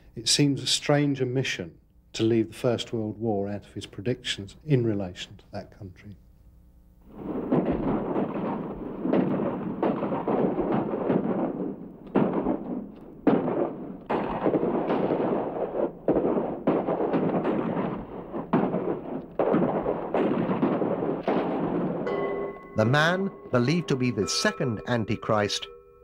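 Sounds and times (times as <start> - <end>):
shell explosions: 7.0 - 25.8
gunfire: 7.1 - 24.2.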